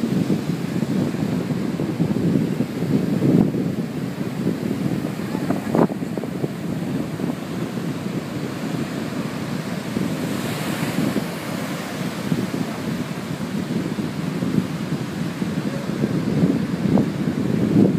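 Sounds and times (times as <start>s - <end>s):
surf breaking on beach: 0.0s - 17.9s
wind buffeting microphone: 0.0s - 17.9s.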